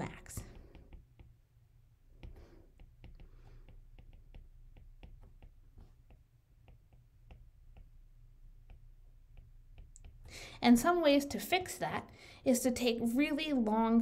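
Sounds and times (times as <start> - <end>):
low room hum: 0.0 - 14.0
stylus tapping on glass screen: 0.3 - 1.4, 2.1 - 10.4.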